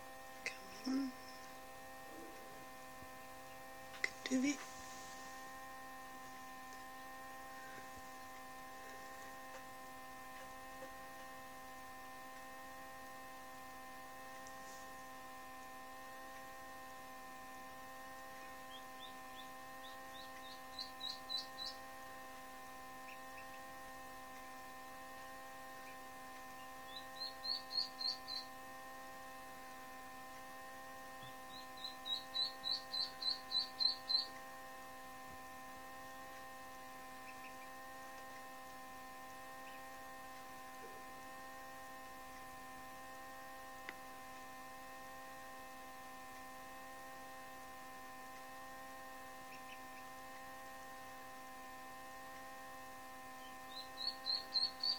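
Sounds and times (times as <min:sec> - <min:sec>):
steady electrical hum: 0:00.0 - 0:54.9
duckling peeping: 0:18.7 - 0:21.9, 0:26.8 - 0:28.6, 0:31.2 - 0:34.4, 0:53.4 - 0:54.9.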